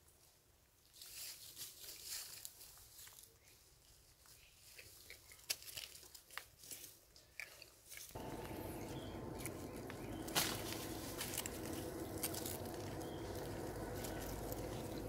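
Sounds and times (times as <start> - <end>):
crackling of dry leaves: 1.0 - 3.2, 8.2 - 15.0
steady low background noise: 8.2 - 15.0.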